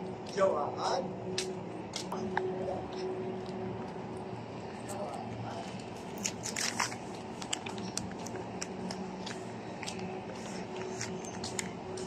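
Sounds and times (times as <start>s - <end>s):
steady low hum: 0.0s - 12.0s
footsteps walking: 1.3s - 4.2s, 5.6s - 12.0s.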